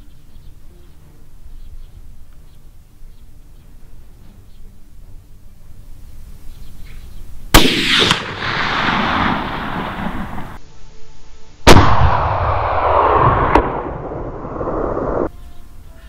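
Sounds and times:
loud rifle shots: 0:07.6 - 0:10.6, 0:11.7 - 0:14.2
rolling echo: 0:07.6 - 0:10.6, 0:11.7 - 0:15.3.

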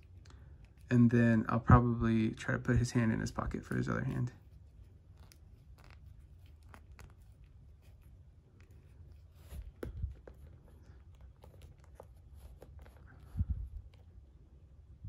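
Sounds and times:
soft low thumps: 0:09.6 - 0:10.4.

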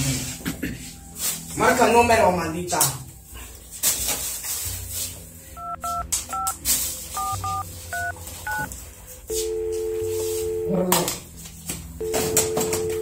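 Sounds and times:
phone keypad touch-tone beeps: 0:05.6 - 0:06.5, 0:07.2 - 0:08.7, 0:12.0 - 0:13.0
two-note phone tone: 0:07.2 - 0:08.7, 0:09.3 - 0:11.1, 0:12.0 - 0:13.0.

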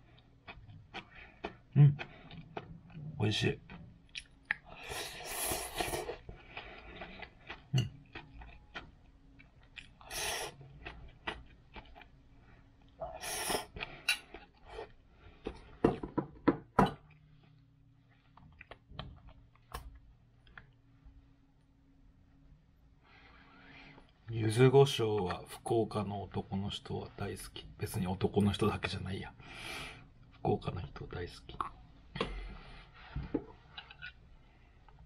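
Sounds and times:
chewing: 0:00.0 - 0:12.2, 0:17.1 - 0:20.8.

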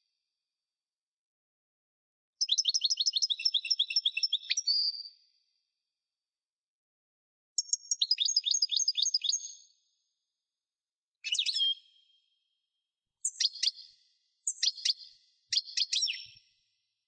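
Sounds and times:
goldfinch twittering song: 0:02.4 - 0:05.0, 0:07.6 - 0:09.7, 0:11.2 - 0:12.1, 0:13.2 - 0:16.5.

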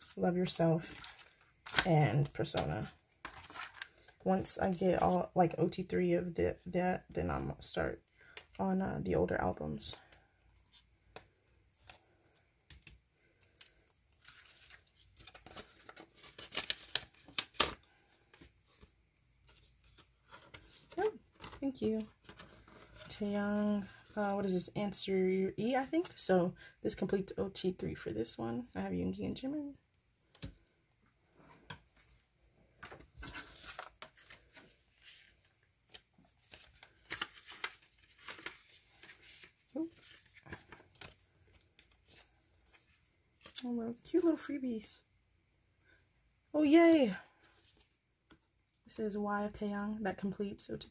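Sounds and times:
paper rustling and crinkling: 0:00.8 - 0:05.1, 0:10.0 - 0:23.2, 0:31.4 - 0:44.4.

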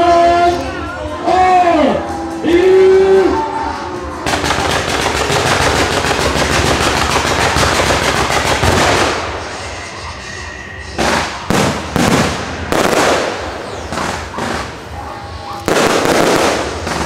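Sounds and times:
rapid firework shots and crackles: 0:04.2 - 0:09.8, 0:11.0 - 0:17.0
firework shells bursting: 0:04.3 - 0:09.4.

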